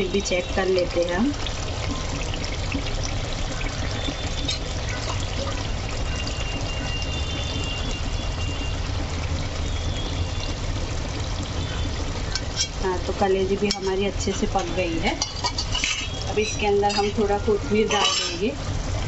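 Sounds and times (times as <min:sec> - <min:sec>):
gravy bubbling in pot: 0:00.0 - 0:19.0
spoon scraping pot: 0:12.3 - 0:12.8, 0:13.7 - 0:17.2.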